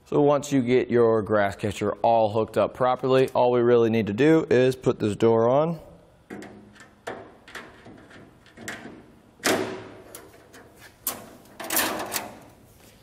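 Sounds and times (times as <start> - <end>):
metal clanks and rattles: 6.3 - 12.6.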